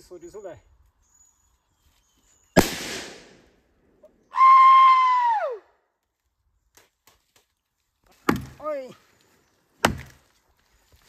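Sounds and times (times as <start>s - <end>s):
person yelling high: 4.3s - 5.6s.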